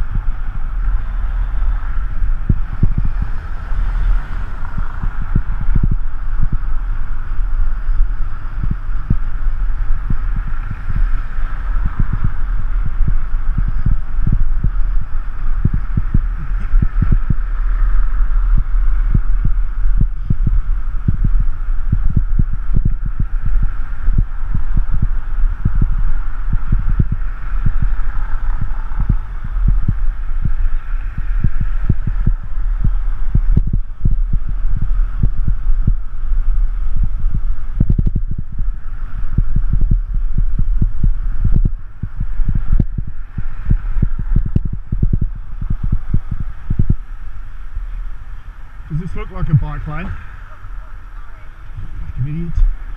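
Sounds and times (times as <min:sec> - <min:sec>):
road noise: 0:00.0 - 0:52.9
wind buffeting microphone: 0:00.0 - 0:52.9.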